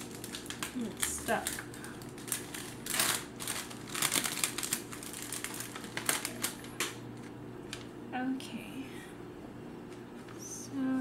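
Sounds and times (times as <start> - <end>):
stickers being peeled: 0.0 - 7.9.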